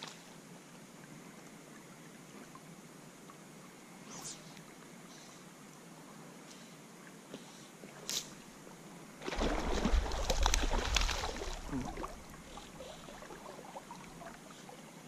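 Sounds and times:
water sloshing and splashing: 9.2 - 14.6.

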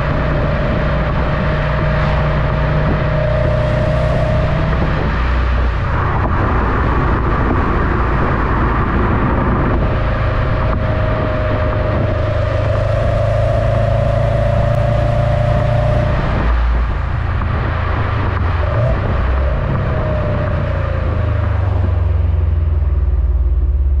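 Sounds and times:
car exhaust rumble: 0.0 - 24.0
road and wind noise: 0.0 - 24.0.

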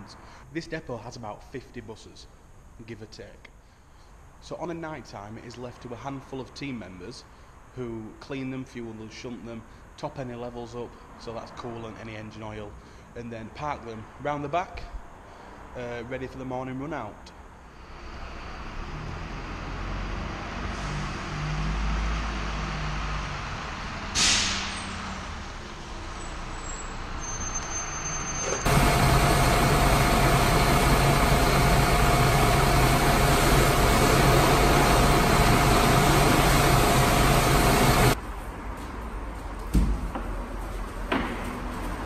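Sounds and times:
bus engine rumble: 17.9 - 38.2
air brakes hissing: 24.1 - 25.0, 26.2 - 38.2
jet washer whine: 28.5 - 38.2
jet washer spraying water: 28.7 - 38.2.

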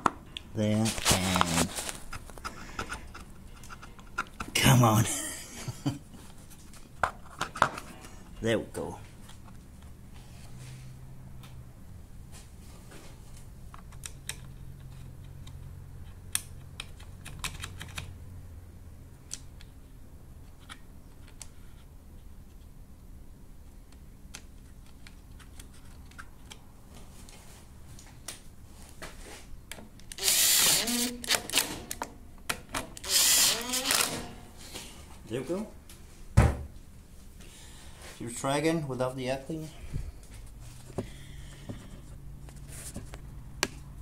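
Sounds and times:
clicks and knocks of parts: 1.0 - 4.6, 13.4 - 18.1
cordless drill whirring: 30.2 - 31.6, 33.0 - 34.3.

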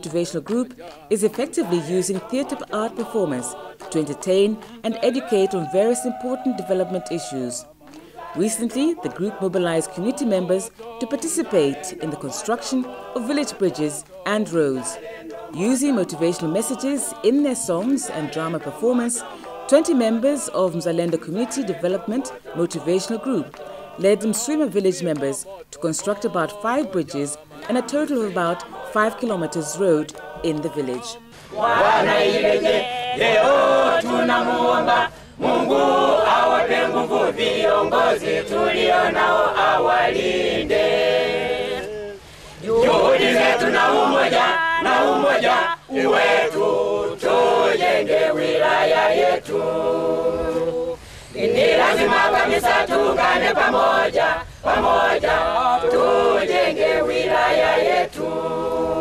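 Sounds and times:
group singing unaccompanied: 0.0 - 59.0.

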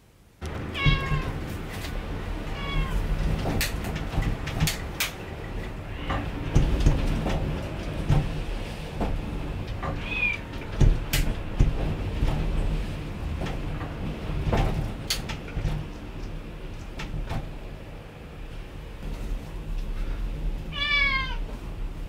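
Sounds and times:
low rumble with rattles: 0.4 - 22.0
cat meowing: 0.7 - 1.4, 2.5 - 3.1, 10.0 - 10.5, 20.7 - 21.5.

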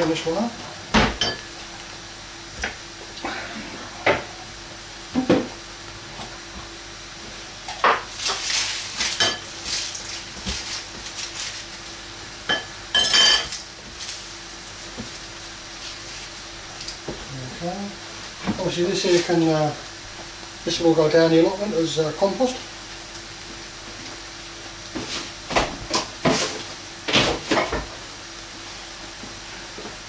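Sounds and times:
onions being peeled: 8.1 - 11.9
rustling of papery onion skin: 8.1 - 12.0, 13.5 - 16.8, 18.6 - 19.8.

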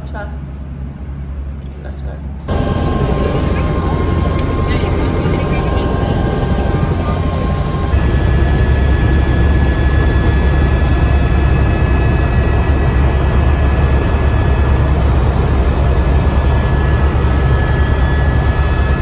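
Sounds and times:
thin high whine: 2.5 - 8.1
helicopter rotor drone: 2.5 - 19.0.

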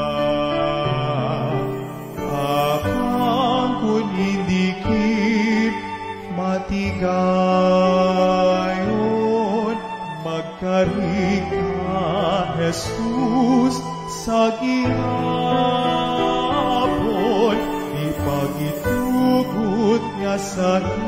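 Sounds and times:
person singing with vibrato: 0.0 - 21.0.

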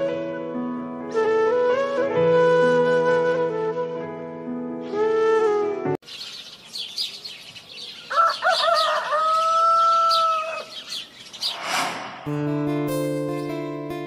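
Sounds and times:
music: 0.0 - 6.0, 12.2 - 14.0
small birds twittering: 6.0 - 11.7
rooster crowing: 8.0 - 10.8
short whoosh: 11.3 - 13.0.

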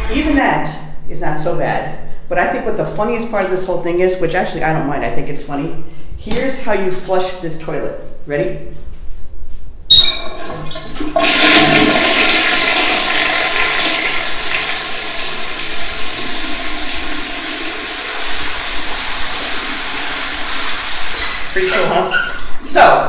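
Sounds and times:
water rushing into toilet bowl: 10.2 - 22.7.

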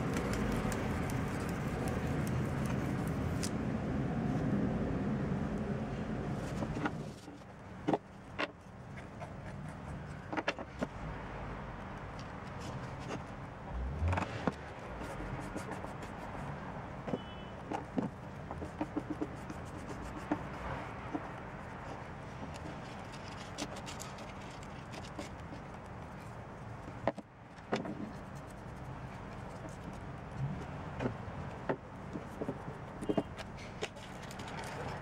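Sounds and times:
small clicks and taps: 0.0 - 3.6.

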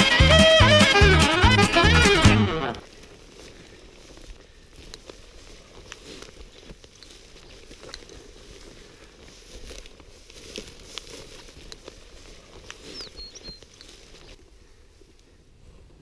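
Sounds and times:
footsteps through dry grass: 1.8 - 16.0
small crackles and clicks: 2.8 - 14.5.

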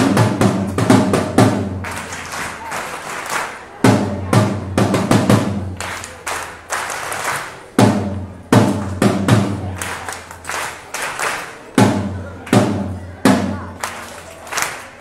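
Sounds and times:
marching snare drum: 0.0 - 6.1, 6.9 - 10.1, 11.7 - 13.8.

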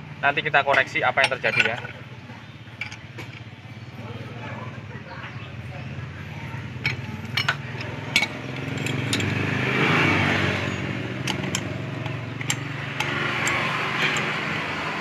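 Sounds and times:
engine hum: 0.0 - 15.0
metal clinks and taps: 0.7 - 2.0, 2.7 - 3.5, 6.8 - 9.4, 11.2 - 14.5.

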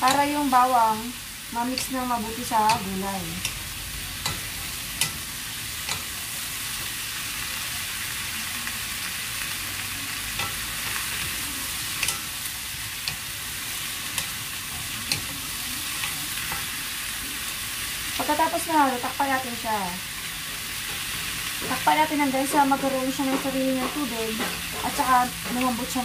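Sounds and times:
wooden spoons clicking on pan: 0.0 - 0.5, 1.6 - 3.6, 4.2 - 6.2, 10.3 - 16.8, 20.8 - 26.0
zucchini sizzling in hot oil: 0.0 - 26.0.

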